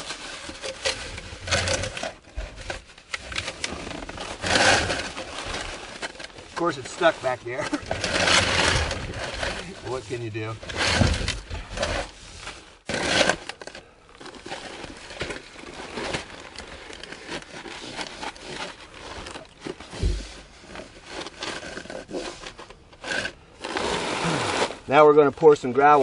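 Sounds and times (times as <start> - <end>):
plastic sheeting crinkling: 0.0 - 26.0
dull thump: 19.9 - 20.4.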